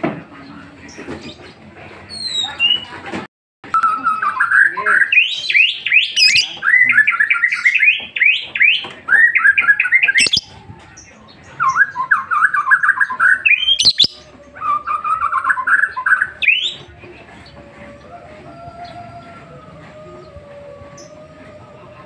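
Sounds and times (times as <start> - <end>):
lovebird chirping rapidly: 3.9 - 10.5, 11.6 - 14.2.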